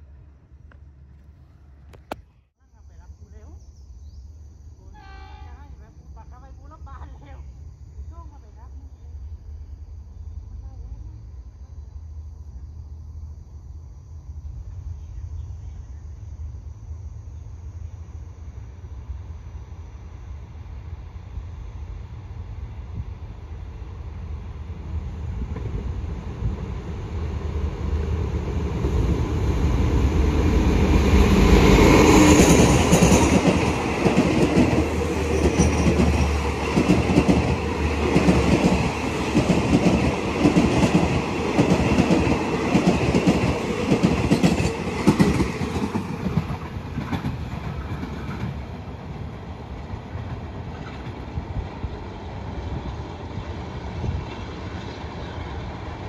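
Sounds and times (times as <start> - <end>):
diesel locomotive engine passing: 18.1 - 56.0
train wheels clicking over rail joints: 32.2 - 48.8.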